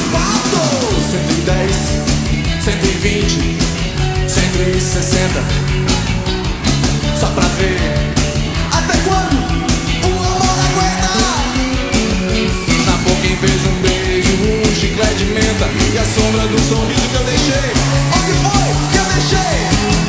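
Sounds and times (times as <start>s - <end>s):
instrumental rock music: 0.0s - 20.0s
steady drum beat: 0.0s - 20.0s.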